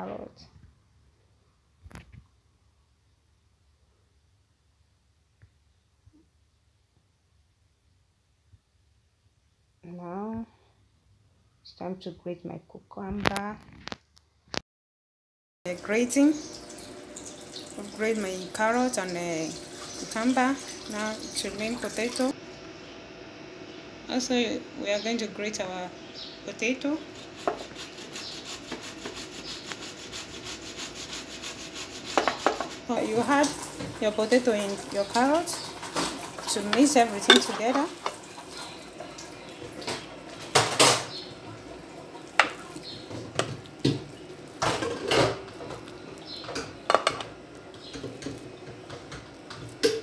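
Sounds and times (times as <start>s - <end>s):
potato grating on metal grater: 27.0s - 37.8s
spoon clinking and scraping plate: 36.5s - 38.2s.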